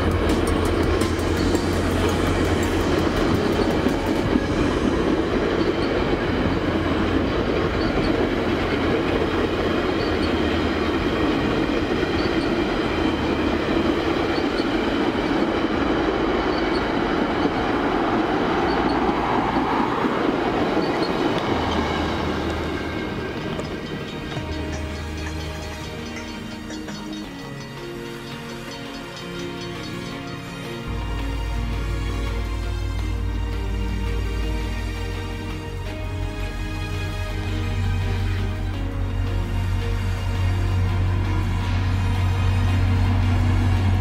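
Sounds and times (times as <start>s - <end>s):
wheels clicking over rail joints: 0.0s - 31.4s
train wheels rumbling on rails: 0.0s - 44.0s.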